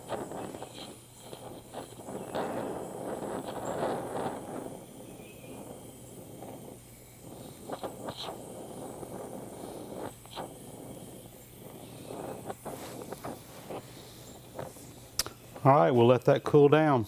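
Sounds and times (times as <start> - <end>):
torch flame hissing: 0.0 - 17.0
small sharp clicks: 14.5 - 15.7.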